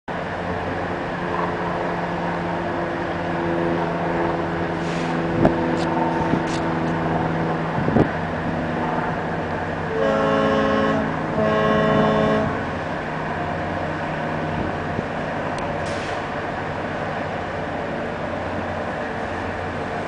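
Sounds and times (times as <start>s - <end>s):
diesel engines droning: 0.1s - 20.0s
boat horn blasts: 9.8s - 12.8s.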